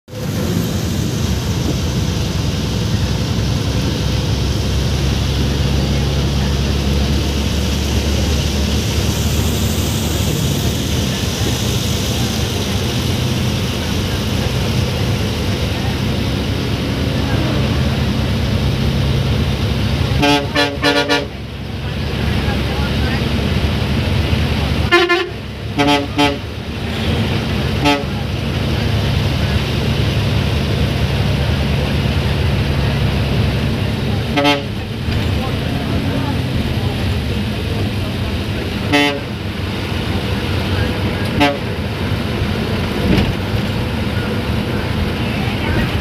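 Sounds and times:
bus engine running: 0.0 - 46.0
road noise: 0.0 - 46.0
horn short toots: 20.1 - 21.4, 24.9 - 26.4, 27.8 - 28.2, 34.3 - 34.8, 41.3 - 41.8.

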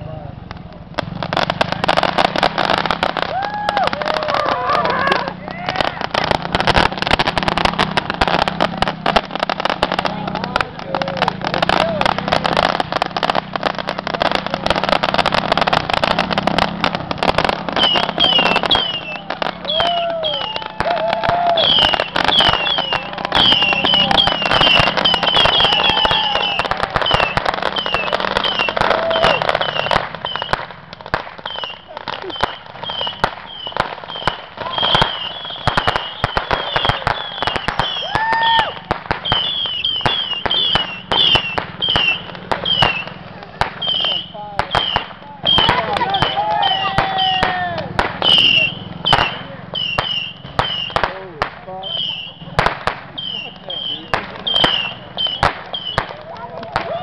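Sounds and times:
fireworks crackling: 0.0 - 57.0
high falling firework whistles: 15.0 - 30.7, 31.4 - 51.0, 51.8 - 56.2.

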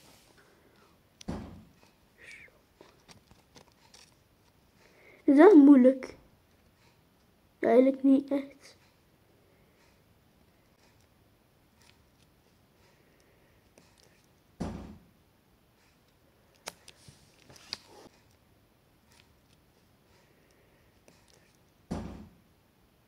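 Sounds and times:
thump on table: 1.3 - 1.7, 14.6 - 15.0, 21.9 - 22.3.

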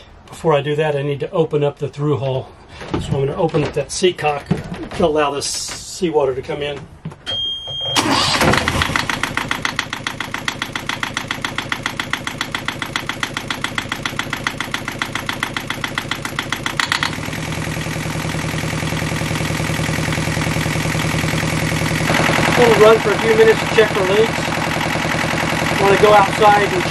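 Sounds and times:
high-pitched beep: 7.3 - 8.0
diesel engine cranking and running: 7.7 - 26.9.

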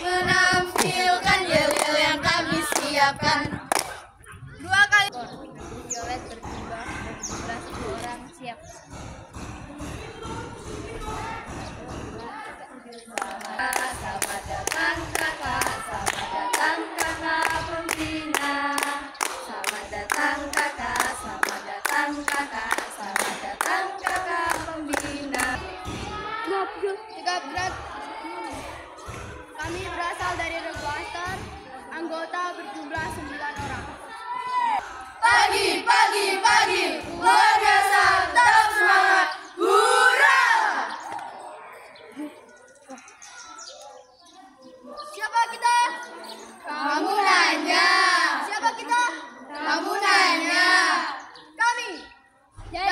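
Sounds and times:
hands clapping to a beat: 0.0 - 4.1, 13.1 - 26.2
girls singing together: 0.0 - 5.0, 12.5 - 41.5, 45.4 - 51.4.

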